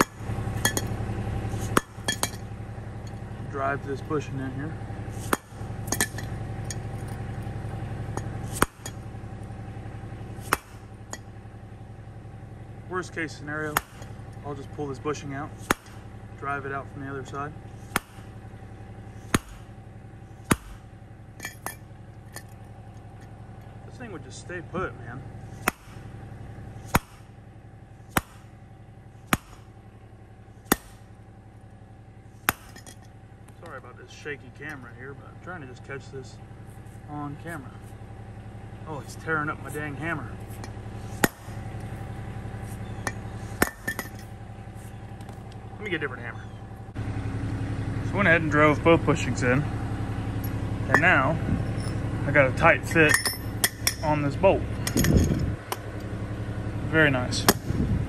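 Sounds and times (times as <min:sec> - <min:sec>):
hammer ringing on steel: 0:00.0 - 0:01.0
steady low hum: 0:00.0 - 0:58.0.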